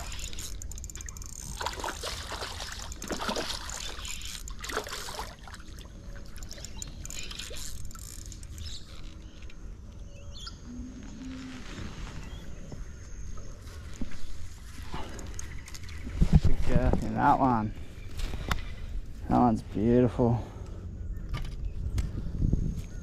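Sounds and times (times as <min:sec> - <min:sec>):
fish splashing: 0:00.0 - 0:06.6
bird chirping: 0:06.0 - 0:11.3.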